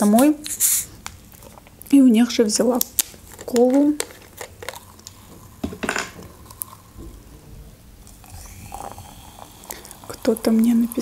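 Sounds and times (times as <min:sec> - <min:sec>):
plastic bottle opening hiss: 0:00.4 - 0:01.1
cola pouring and fizzing: 0:08.0 - 0:11.0.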